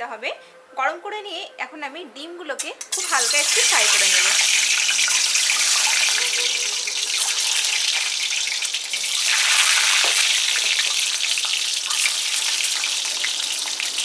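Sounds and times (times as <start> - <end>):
oil sizzling and crackling: 2.8 - 14.0.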